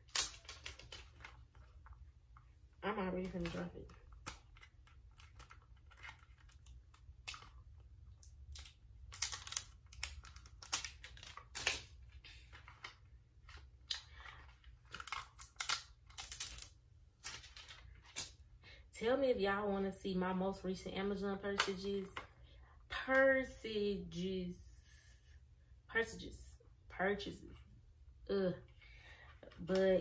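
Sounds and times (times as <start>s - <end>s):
plastic film crinkling: 0.0s - 18.4s.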